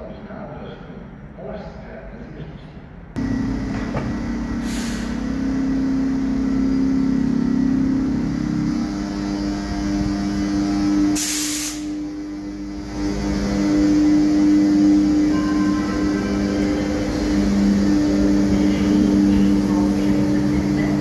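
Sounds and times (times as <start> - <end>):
electric locomotive humming: 2.5 - 21.0
air hiss: 4.6 - 5.3, 11.1 - 12.0.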